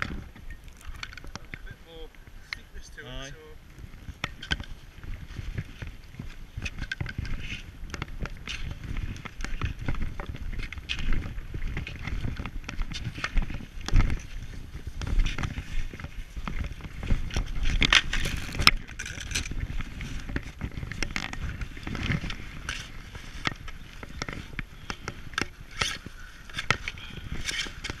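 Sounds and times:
low microphone rumble: 14.7s - 23.2s
ski boot footsteps in snow: 18.2s - 18.6s.

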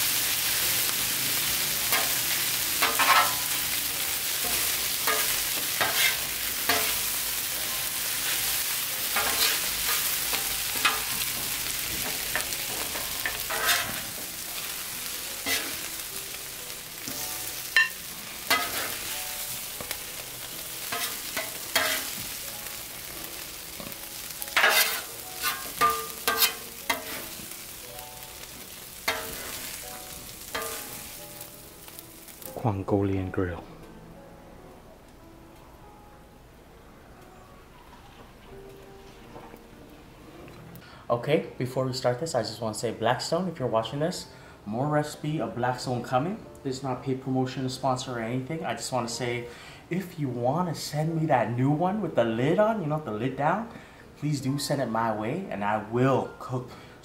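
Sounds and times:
noodles sizzling on a griddle: 0.0s - 32.7s
metal spatulas scraping and clacking: 2.8s - 3.4s, 4.4s - 7.0s, 9.2s - 11.2s, 12.4s - 14.1s, 15.4s - 15.8s, 17.8s - 19.0s, 20.9s - 22.1s, 24.6s - 27.3s, 29.1s - 29.6s, 30.6s - 30.9s.

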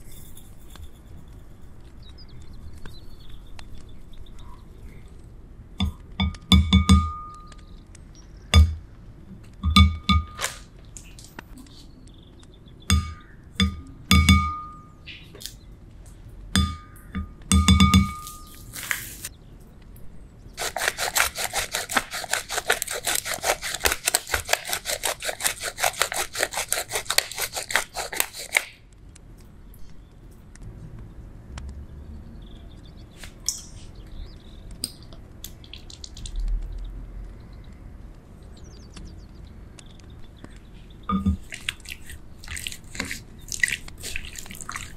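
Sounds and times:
pepper mill grinding: 20.6s - 28.8s, 41.1s - 44.9s.

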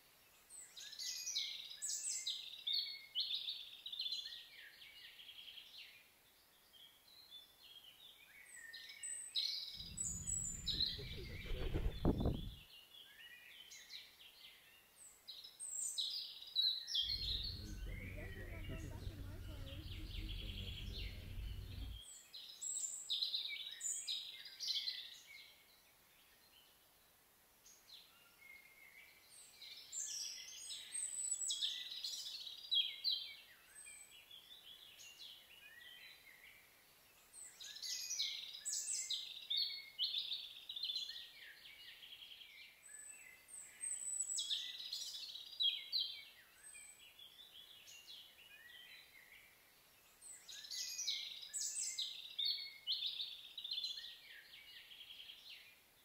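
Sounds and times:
low rumble: 9.8s - 12.6s, 17.1s - 22.0s
songbirds chirping and trilling: 9.8s - 12.6s, 17.0s - 22.0s.

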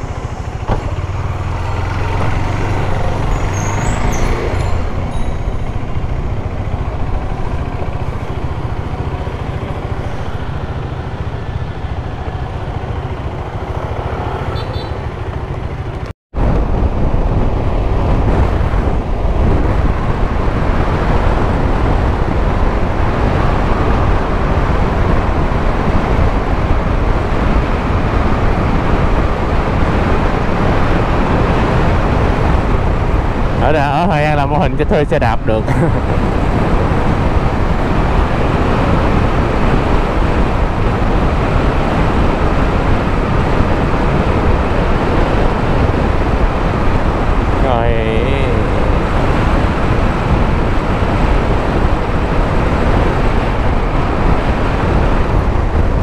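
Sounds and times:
motorcycle engine running: 0.0s - 16.1s
traffic: 0.0s - 56.0s
wind and road noise: 0.0s - 56.0s.

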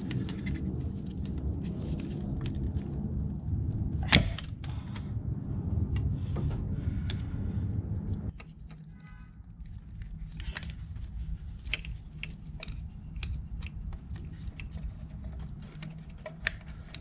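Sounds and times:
low steady rumble: 0.0s - 17.0s
plastic connectors clicking and rattling: 8.3s - 17.0s.

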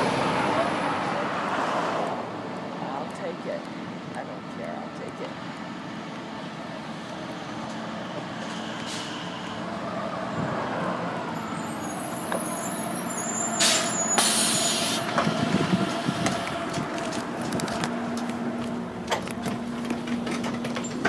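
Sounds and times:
bus engine: 0.0s - 21.0s
air brakes hissing: 8.4s - 9.5s, 11.5s - 16.3s.

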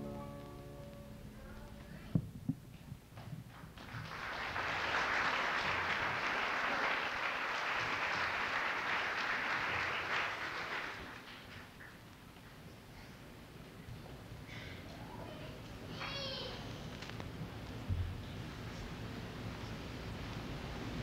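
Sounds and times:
audience applauding: 3.5s - 12.6s.

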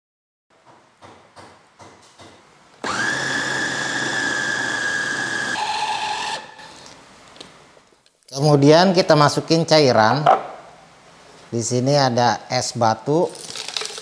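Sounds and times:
food chopper motor whining: 2.8s - 6.9s.

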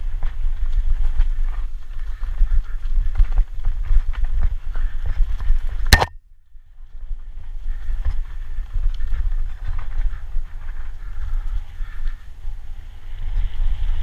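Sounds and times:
wind rumble on microphone: 0.0s - 14.0s
sharp loud knock: 5.9s - 6.2s.

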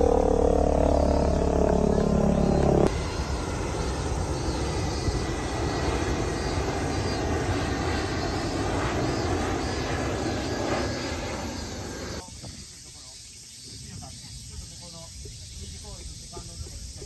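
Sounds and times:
loud multi-pitched drone: 0.0s - 12.2s
jet airliner passing overhead: 0.0s - 12.3s.

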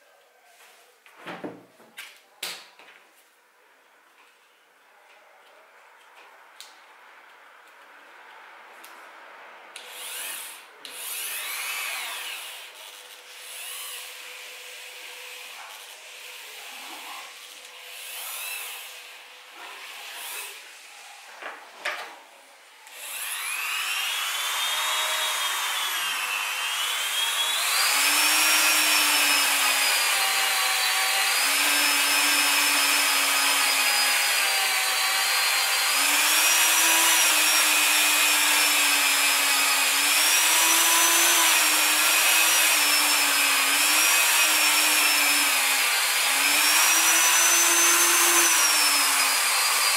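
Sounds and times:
rotary tool whining: 9.8s - 20.6s, 22.9s - 49.9s.

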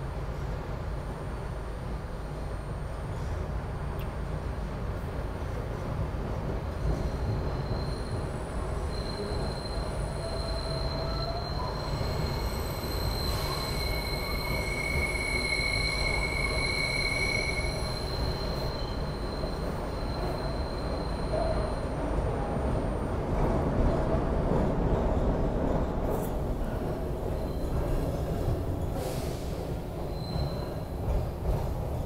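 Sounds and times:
subway car rumble: 0.0s - 32.0s
wheel-on-rail squeal: 6.8s - 22.1s, 27.2s - 31.2s.

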